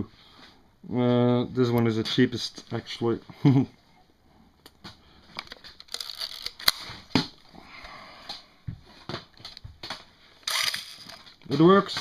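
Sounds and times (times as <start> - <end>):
camera winding rasp: 5.4 - 6.8.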